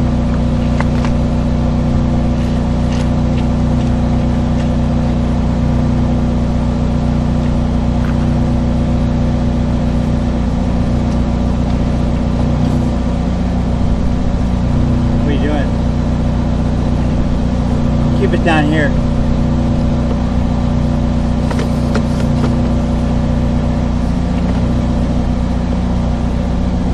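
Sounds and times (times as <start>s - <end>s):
engine and pump droning: 0.0s - 26.9s.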